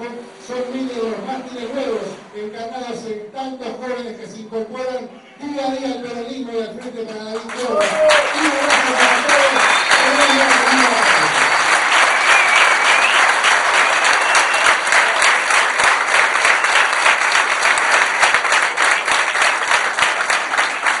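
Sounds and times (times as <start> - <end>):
large crowd applauding: 7.4 - 21.0.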